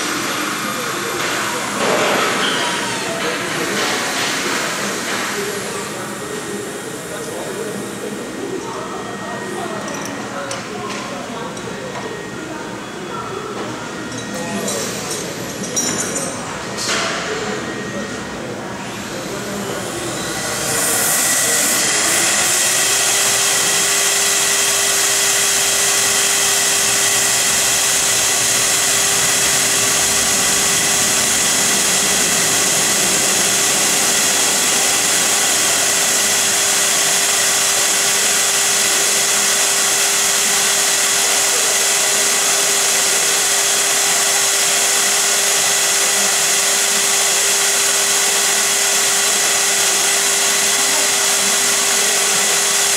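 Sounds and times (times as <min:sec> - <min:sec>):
router spindle whine: 0:17.3 - 0:52.9.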